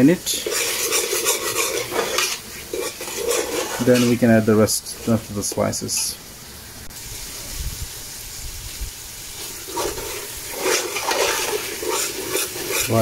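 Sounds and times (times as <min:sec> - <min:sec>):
metal spoon scraping pot: 0:00.0 - 0:05.7, 0:09.4 - 0:13.0
tomato puree sizzling in pot: 0:00.0 - 0:13.0.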